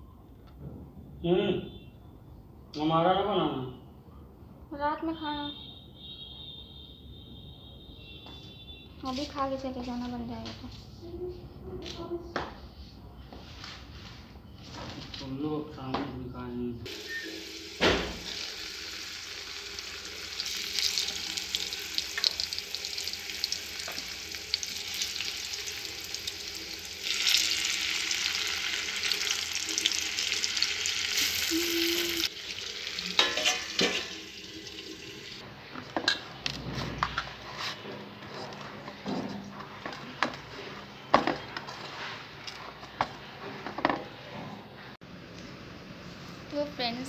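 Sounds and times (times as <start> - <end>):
potatoes sizzling in hot oil: 16.9 - 35.4
utensils clinking and knocking: 33.1 - 34.2.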